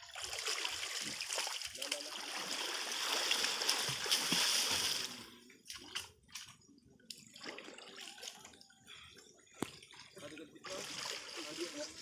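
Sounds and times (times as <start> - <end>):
people splashing in river water: 0.0 - 8.7, 9.6 - 12.0
water sloshing: 0.0 - 8.7.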